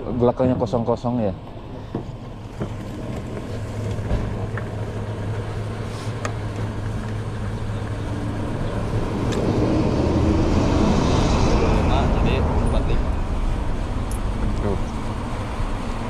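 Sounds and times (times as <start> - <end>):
fuel pump humming: 1.3 - 16.0.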